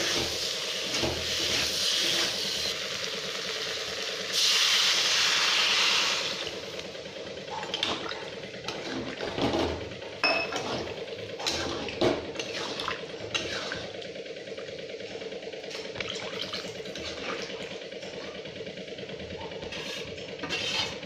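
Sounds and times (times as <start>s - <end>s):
steady low hum: 0.0s - 21.0s
stirring through liquid: 10.5s - 14.1s, 15.7s - 18.4s, 19.4s - 21.0s
metal spatula scraping a wok: 13.4s - 13.8s, 19.6s - 21.0s.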